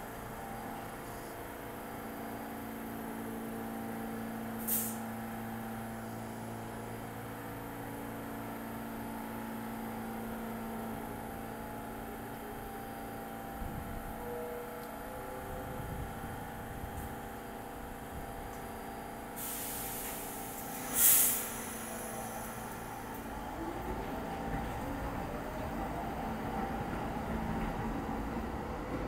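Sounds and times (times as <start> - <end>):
subway train equipment humming: 0.0 - 29.0
air brake hiss: 4.6 - 5.0, 19.4 - 22.9.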